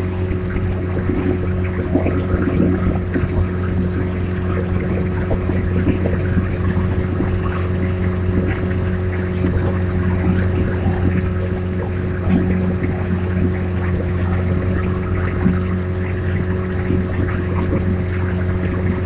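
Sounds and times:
motorboat engine humming: 0.0s - 19.0s
water rushing past hull: 0.0s - 19.0s.

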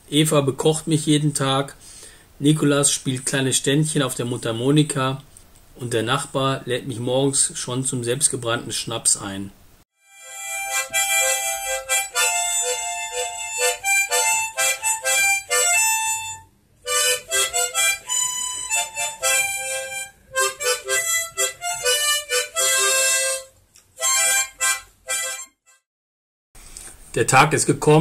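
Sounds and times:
harmonica playing a tune: 10.0s - 25.8s.

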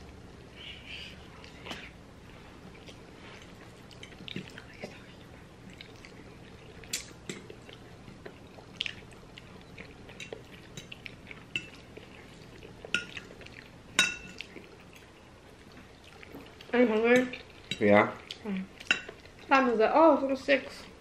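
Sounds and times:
forks clinking on ceramic plates: 14.0s - 14.4s.

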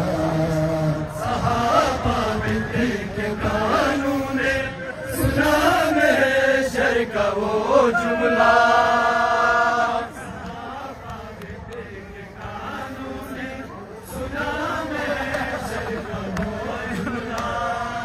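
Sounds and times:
men chanting a lament: 0.0s - 18.0s.

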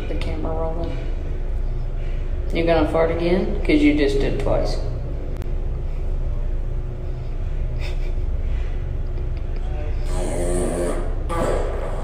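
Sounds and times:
dog farting: 10.1s - 12.0s.

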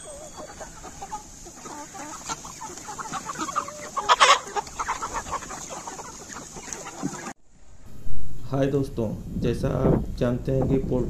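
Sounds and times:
chickens clucking: 0.0s - 7.4s.

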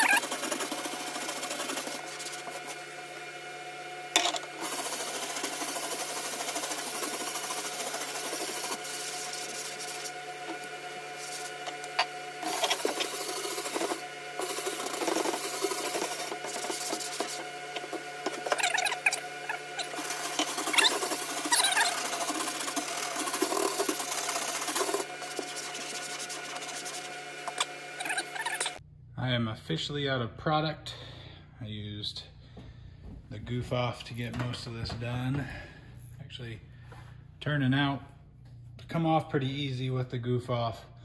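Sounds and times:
brush scrubbing deck: 0.0s - 2.8s, 4.6s - 28.8s.

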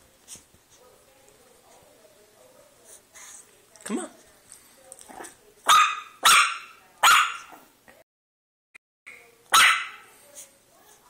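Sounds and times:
puppy yapping: 5.7s - 7.6s, 9.5s - 10.0s.

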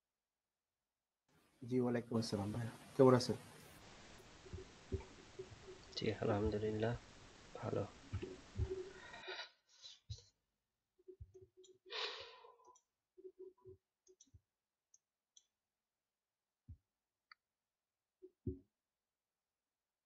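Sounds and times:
breathy exhale: 11.9s - 12.5s.

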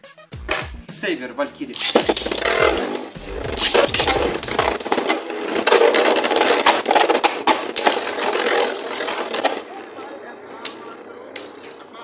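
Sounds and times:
spinning tops whirring and scraping: 1.7s - 11.1s
spinning tops clicking together: 1.8s - 9.7s.

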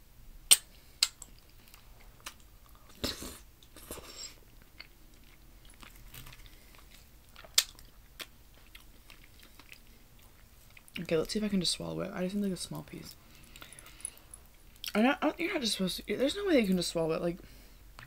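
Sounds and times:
wet chewing with smacks: 0.5s - 11.1s.

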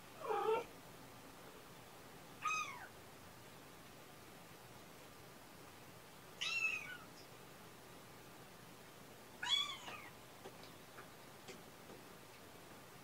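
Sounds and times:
kitten meowing: 2.4s - 2.9s, 6.4s - 7.0s, 9.4s - 10.1s.

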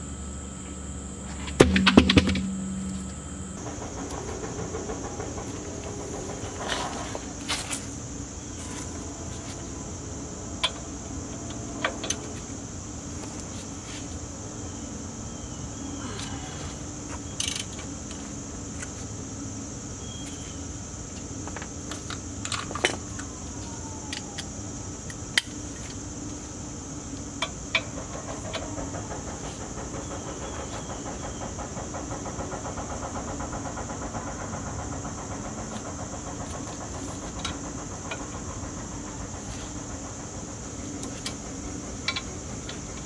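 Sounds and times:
steady hum: 0.0s - 43.0s
sharp metal clanks and knocks: 1.4s - 7.9s.

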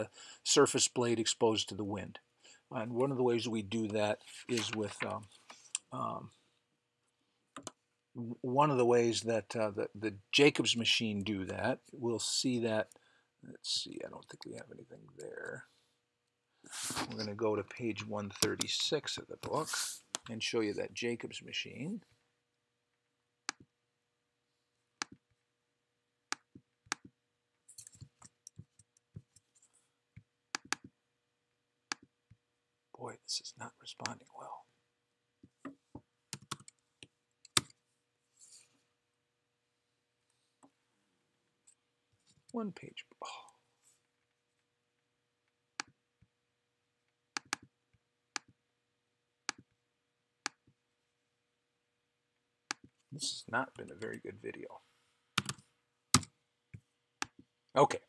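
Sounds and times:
computer mouse clicks: 30.6s - 30.9s, 47.4s - 47.7s, 55.4s - 55.6s
computer mouse and keyboard clicks: 55.4s - 55.6s.

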